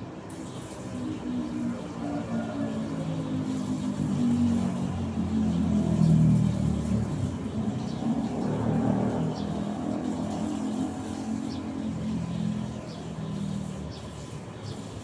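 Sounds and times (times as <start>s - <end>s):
vehicle engine running: 0.3s - 15.0s.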